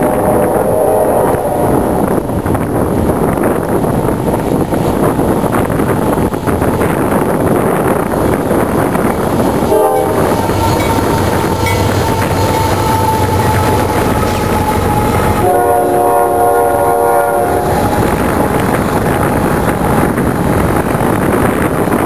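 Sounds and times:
train horn chord: 0.0 - 2.0, 9.7 - 18.3
diesel locomotive engines rumbling: 0.0 - 22.0
wind noise on microphone: 0.0 - 22.0.

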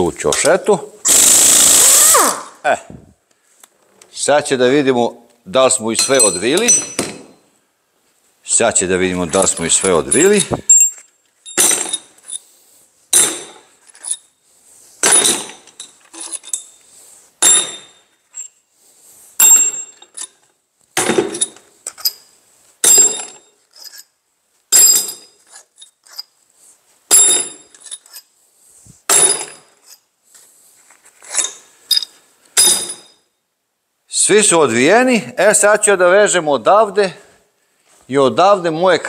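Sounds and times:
metal tools clinking: 5.9 - 7.4, 9.2 - 12.5, 13.2 - 14.4, 15.0 - 18.6, 19.4 - 26.4, 27.1 - 28.3, 29.1 - 30.1, 31.2 - 33.3.

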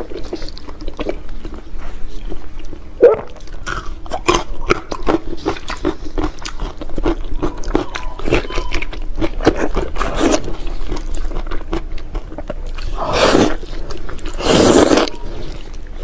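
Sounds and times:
person chewing wetly: 0.0 - 16.0
loud sucking sounds: 14.4 - 15.2.

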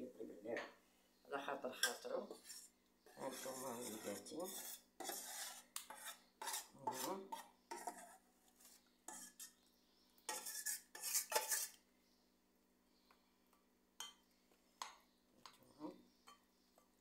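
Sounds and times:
metal utensil scraping a bowl: 1.7 - 9.6, 10.3 - 11.8.

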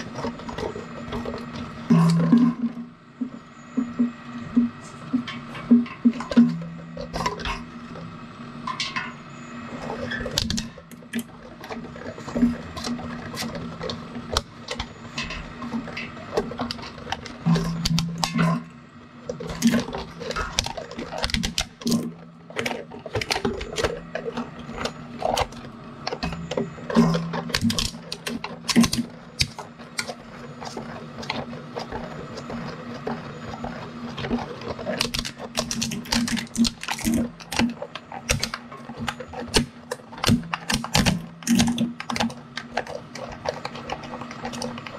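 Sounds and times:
plastic cracking and crunching: 19.2 - 44.9.

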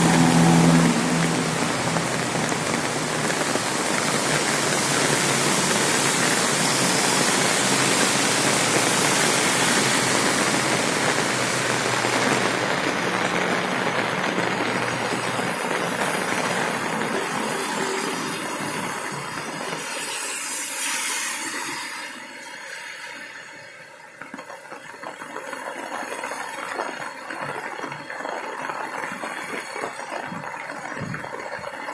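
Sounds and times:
tyres swishing through water: 0.0 - 23.8
car passing: 0.0 - 24.0
heavy rain on pavement: 0.0 - 31.9.

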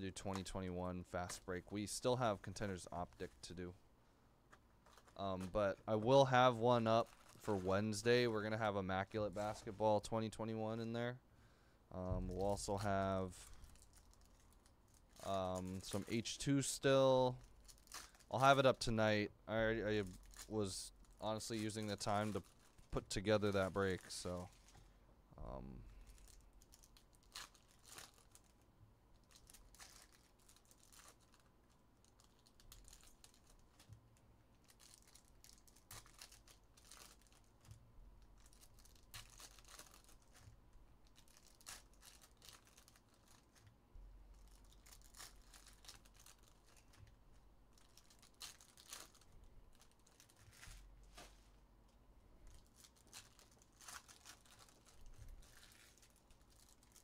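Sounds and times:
foil wrappers tearing and crinkling: 4.9 - 9.8, 12.3 - 18.7, 26.1 - 28.6, 29.2 - 33.9, 34.6 - 37.7, 38.3 - 43.6, 44.3 - 47.1, 47.8 - 51.4, 52.5 - 57.0.

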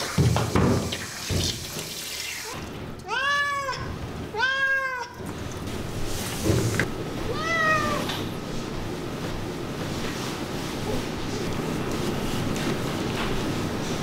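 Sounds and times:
cat meowing: 3.0 - 5.2, 7.3 - 8.2.

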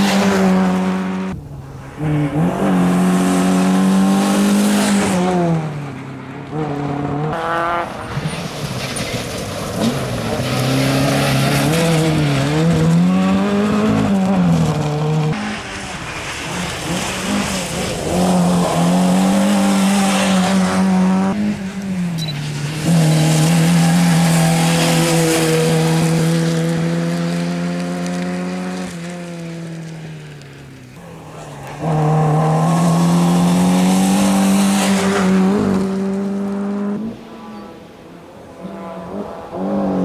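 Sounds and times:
car engine revving hard: 2.0 - 5.7, 31.3 - 37.7
tyres hissing on loose gravel: 15.4 - 18.6.

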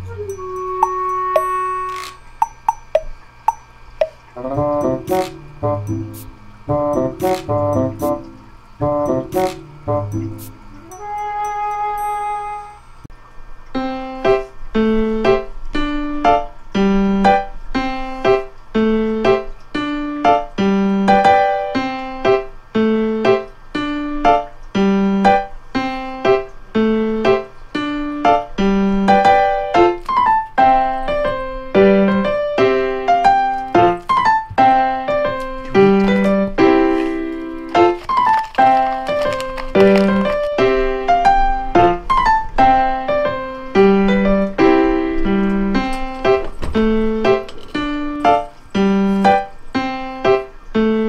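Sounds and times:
piano music: 0.0 - 13.1, 13.7 - 51.0.

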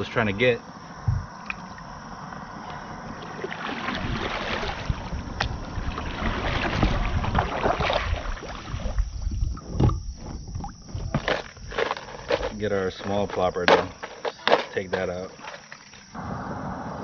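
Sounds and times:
low thump: 1.0 - 1.3, 9.3 - 11.2
paddle splashing in water: 2.7 - 15.8.

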